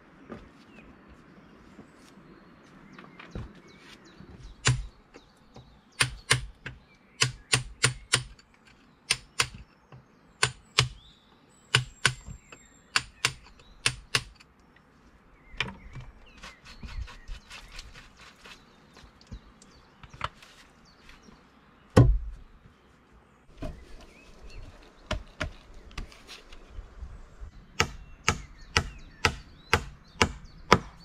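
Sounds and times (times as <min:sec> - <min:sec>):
hammer striking wood: 0:04.6 - 0:04.9, 0:06.0 - 0:08.4, 0:10.4 - 0:11.0, 0:11.7 - 0:14.3, 0:22.0 - 0:22.3, 0:27.8 - 0:31.0.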